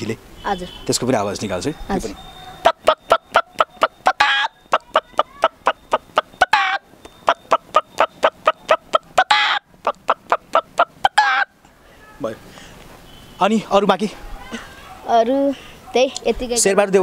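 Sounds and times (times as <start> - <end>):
boy imitating hen clucking: 2.6 - 11.6.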